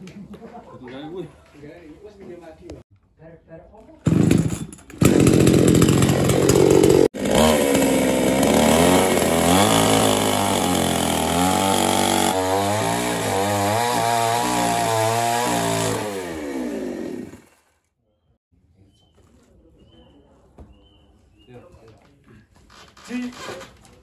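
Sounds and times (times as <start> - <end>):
chainsaw running: 4.0 - 17.8.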